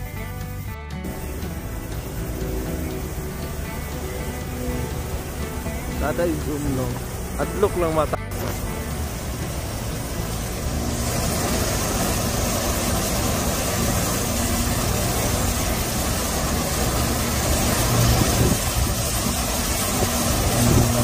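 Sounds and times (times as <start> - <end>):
river rushing over waterfall: 1.1 - 21.0.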